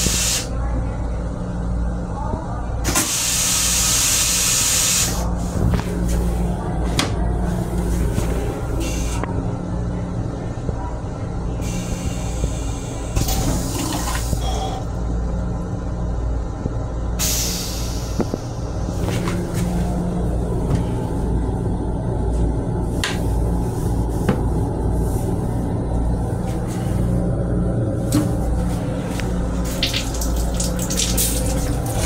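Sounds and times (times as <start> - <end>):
low rail car hum: 0.0 - 32.0
toilet flushing: 2.9 - 5.2, 11.6 - 14.9, 29.4 - 32.0.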